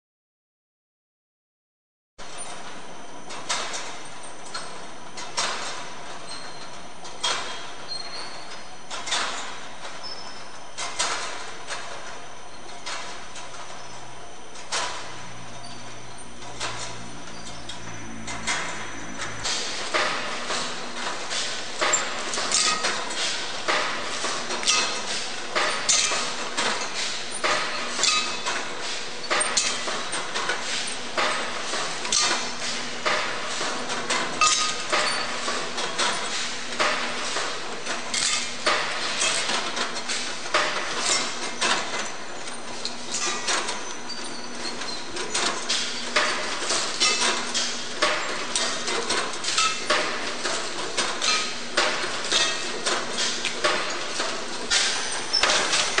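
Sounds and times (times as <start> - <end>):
low machine hum: 2.2 - 56.0
machine parts clattering: 14.6 - 56.0.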